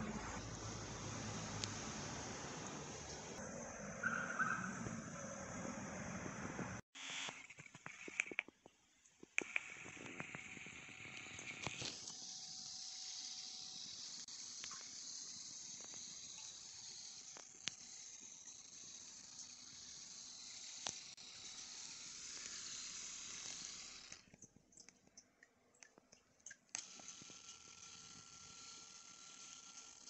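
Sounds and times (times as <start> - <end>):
massager motor whirring: 0.0 - 3.4, 9.4 - 24.4, 26.7 - 30.0.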